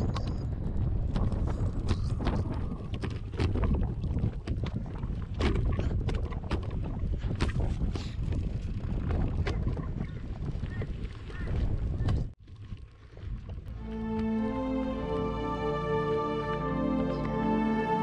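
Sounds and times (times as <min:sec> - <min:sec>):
wind buffeting microphone: 0:00.0 - 0:13.8.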